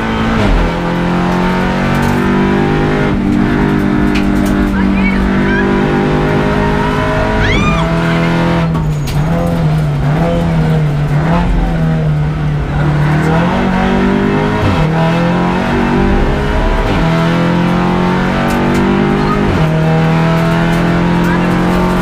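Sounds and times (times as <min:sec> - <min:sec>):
car engine accelerating hard: 0:00.0 - 0:22.0.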